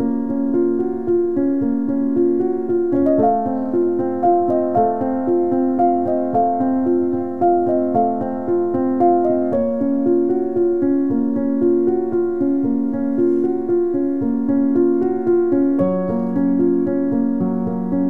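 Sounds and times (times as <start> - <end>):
piano melody: 0.0 - 18.0.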